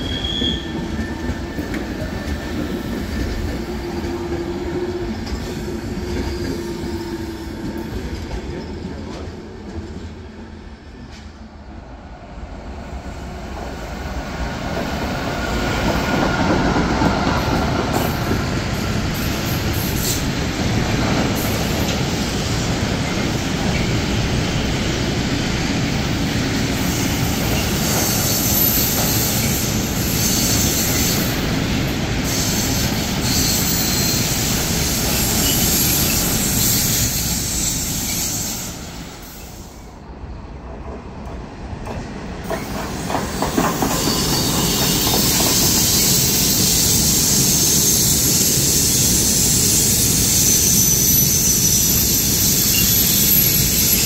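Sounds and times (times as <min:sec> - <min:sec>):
wheel squeal: 0:00.0 - 0:02.0, 0:32.3 - 0:38.7, 0:42.6 - 0:54.0
train wheels rumbling on rails: 0:00.0 - 0:54.0
clickety-clack of wheels: 0:27.4 - 0:29.8, 0:40.6 - 0:47.0.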